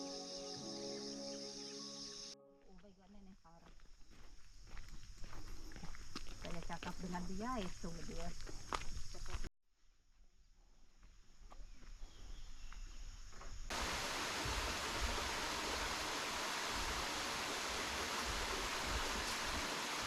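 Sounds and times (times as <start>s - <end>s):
stream rushing: 13.7s - 20.0s.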